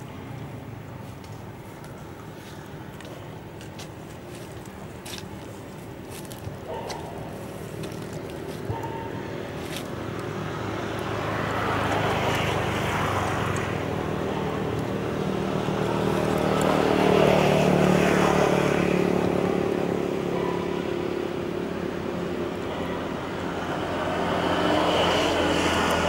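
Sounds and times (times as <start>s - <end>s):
vehicle engine passing: 6.6s - 26.0s.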